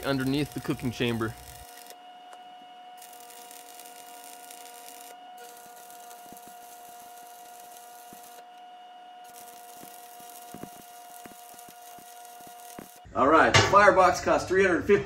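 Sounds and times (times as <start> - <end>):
welding arc crackling and hissing: 0.0 - 2.0, 3.0 - 8.6, 9.2 - 13.1.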